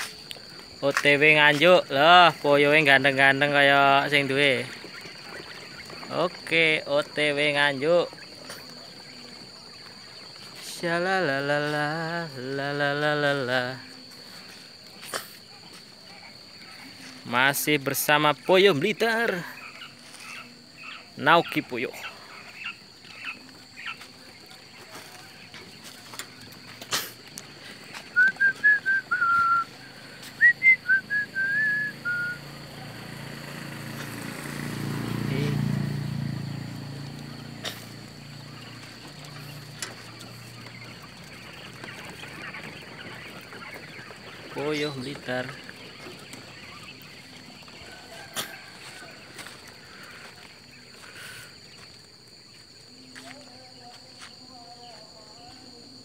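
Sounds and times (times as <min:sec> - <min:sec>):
quail calls: 0:00.0 - 0:10.9, 0:14.2 - 0:32.4, 0:37.0 - 0:51.8
person whistling a tune: 0:28.2 - 0:29.7, 0:30.4 - 0:32.4.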